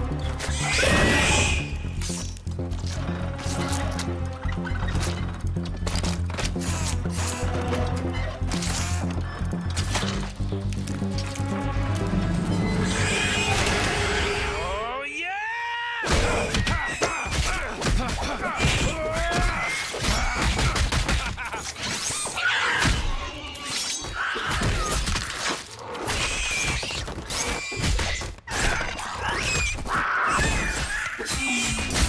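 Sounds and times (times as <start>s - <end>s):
rat squeals and screeches: 0.4s - 1.8s, 12.5s - 14.4s, 21.8s - 32.0s.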